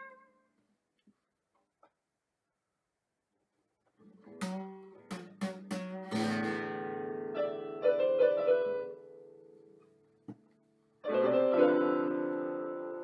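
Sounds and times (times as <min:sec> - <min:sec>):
classical guitar chords: 0:04.0 - 0:09.8, 0:11.0 - 0:13.0.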